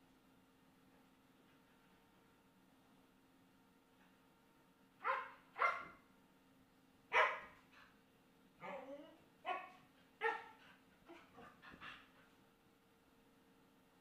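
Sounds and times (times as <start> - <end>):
dog barking: 5.0 - 6.0, 7.1 - 7.6, 9.4 - 10.6.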